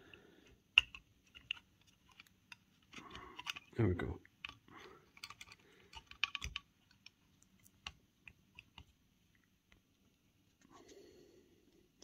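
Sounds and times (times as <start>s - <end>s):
metal and plastic parts clicking: 0.4s - 9.0s.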